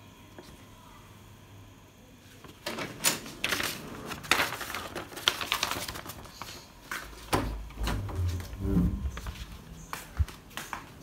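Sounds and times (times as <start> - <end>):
paper rustling and crackling: 2.4 - 9.7.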